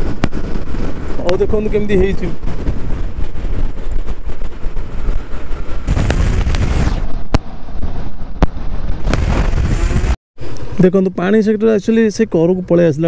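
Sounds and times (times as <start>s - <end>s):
wind buffeting microphone: 0.0s - 10.2s
motorcycle running: 8.9s - 10.2s.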